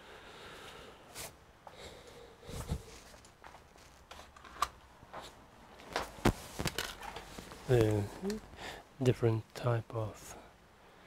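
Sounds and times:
small objects clicking and rustling: 0:05.9 - 0:08.4.

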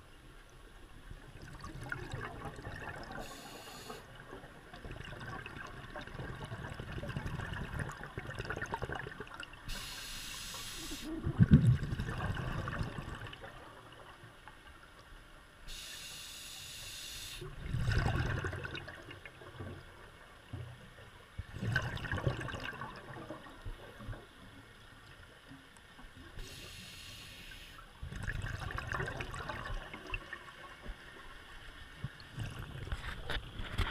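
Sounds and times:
exhaled air bubbling: 0:01.2 - 0:14.2, 0:17.2 - 0:19.6, 0:21.4 - 0:24.3, 0:26.3 - 0:30.8, 0:32.0 - 0:33.9
regulator inhale hiss: 0:03.2 - 0:04.1, 0:09.7 - 0:11.1, 0:15.7 - 0:17.5, 0:26.4 - 0:27.9.

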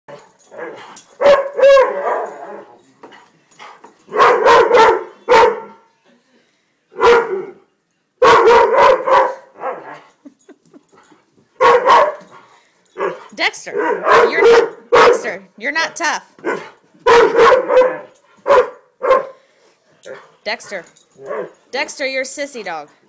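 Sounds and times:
dog barking: 0:01.2 - 0:02.3, 0:04.1 - 0:05.8, 0:07.0 - 0:07.5, 0:08.2 - 0:10.0, 0:11.6 - 0:12.3, 0:13.0 - 0:15.3, 0:16.4 - 0:19.4.

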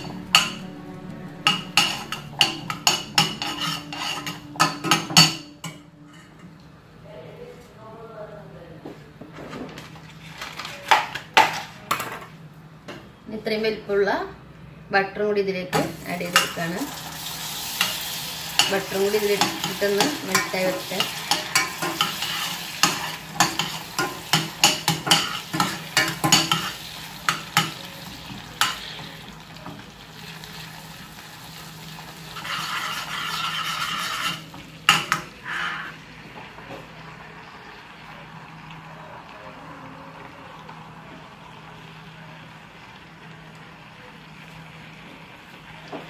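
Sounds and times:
caramel sizzling: 0:00.0 - 0:06.8, 0:15.8 - 0:46.0
fork scraping a metal saucepan: 0:03.2 - 0:05.4, 0:32.4 - 0:34.5, 0:35.4 - 0:36.0.

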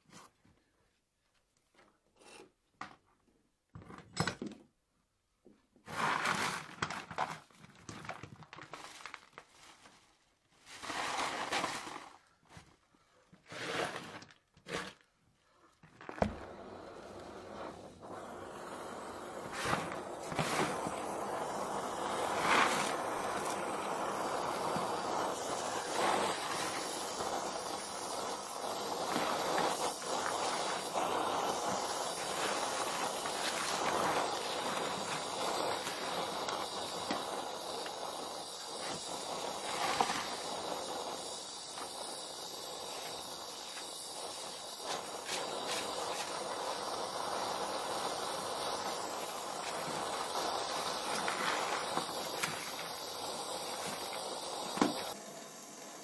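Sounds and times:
welding torch flame hissing: 0:10.8 - 0:12.2, 0:16.0 - 0:56.0.

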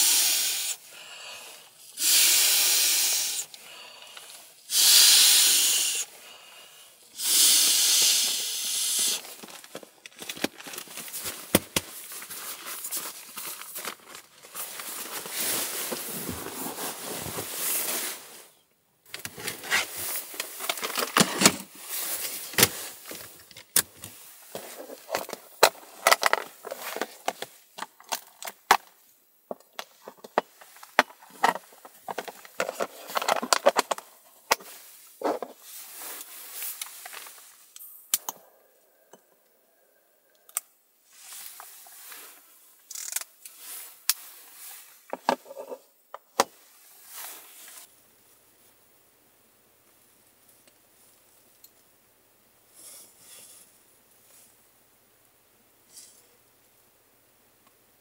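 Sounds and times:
breaths blown into valve: 0:04.7 - 0:06.1
fabric rustling: 0:10.6 - 0:18.6.

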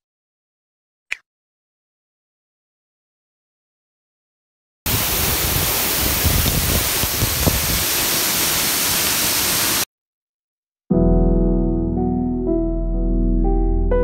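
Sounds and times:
rush of falling water: 0:04.9 - 0:09.9.

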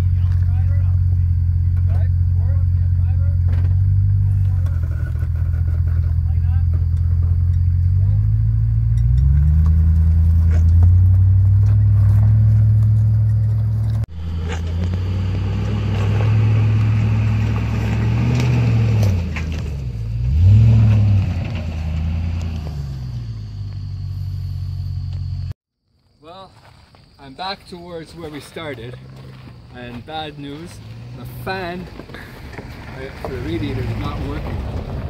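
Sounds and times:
engine running at low speed: 0:00.0 - 0:25.6.

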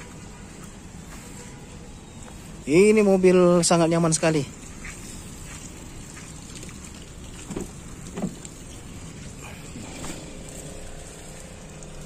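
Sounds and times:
light rain hissing: 0:00.0 - 0:12.0
soft knocks: 0:07.4 - 0:08.4.

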